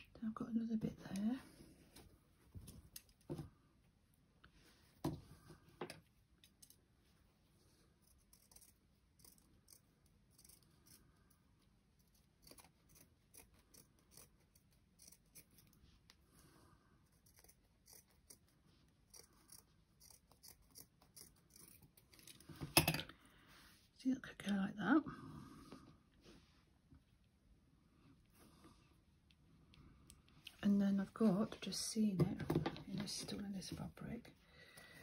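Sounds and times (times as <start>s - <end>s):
scissors snipping through fabric: 8.0s - 11.0s, 17.1s - 22.4s.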